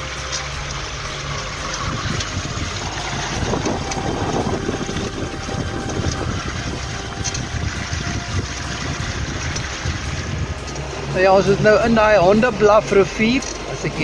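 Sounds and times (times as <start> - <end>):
water splashing along boat hull: 0.0 - 14.0
wind buffeting microphone: 0.0 - 14.0.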